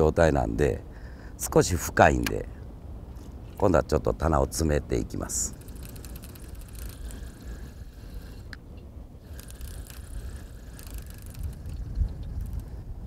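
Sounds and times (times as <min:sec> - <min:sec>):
wind buffeting microphone: 0:05.2 - 0:13.0
faint clicks: 0:05.5 - 0:12.9.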